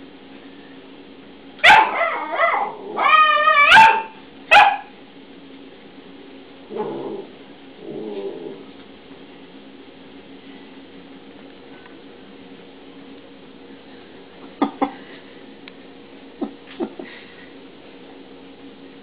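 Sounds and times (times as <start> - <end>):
puppy barking and yipping: 1.6 - 4.9
puppy growling: 1.9 - 3.7, 6.6 - 8.7.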